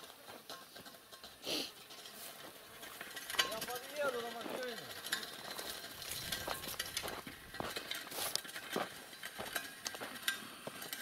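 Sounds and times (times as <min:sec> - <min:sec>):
footsteps on dirt road: 0:00.0 - 0:11.0
shovel and bucket clinking: 0:03.3 - 0:11.0.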